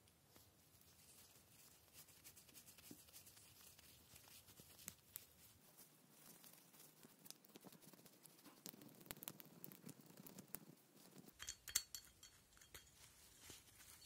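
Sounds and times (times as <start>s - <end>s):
light clicks of metal parts: 11.4s - 13.4s.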